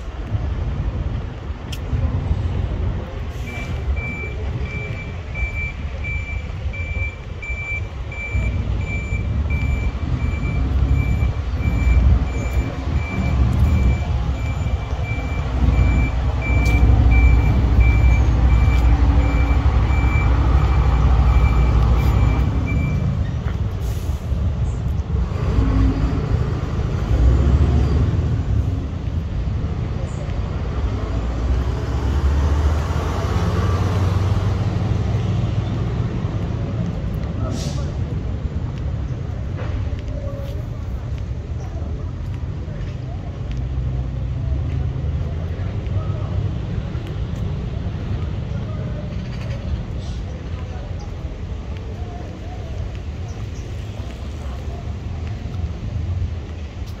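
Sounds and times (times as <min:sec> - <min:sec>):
heavy vehicle engine rumble: 0:00.0 - 0:57.0
reversing alarm beeping: 0:03.5 - 0:23.2.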